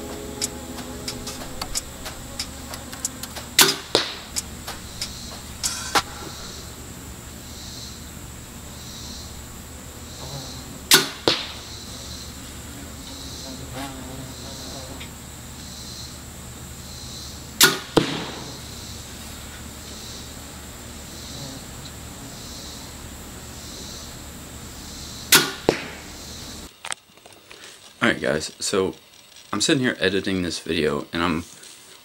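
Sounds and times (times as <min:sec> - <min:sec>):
bow string crack: 0:00.0 - 0:13.2, 0:17.6 - 0:19.6, 0:25.3 - 0:26.1
arrow striking target: 0:00.1 - 0:06.6, 0:10.2 - 0:11.8, 0:17.6 - 0:18.6, 0:25.3 - 0:26.0.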